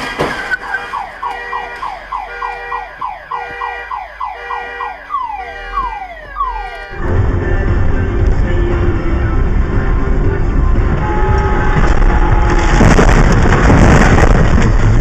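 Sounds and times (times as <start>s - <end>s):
car alarm cycling tones: 0.6s - 7.0s.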